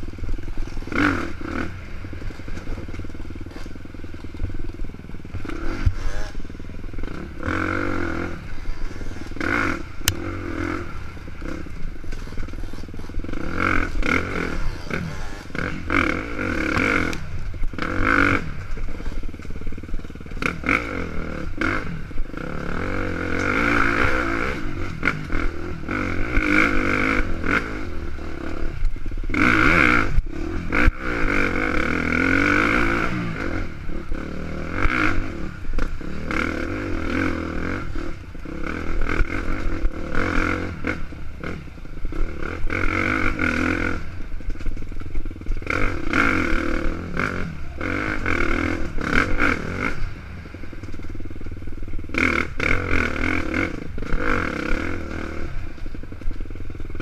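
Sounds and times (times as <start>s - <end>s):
dirt bike engine revving: 0.0s - 57.0s
bike clattering over bumps: 0.3s - 7.1s.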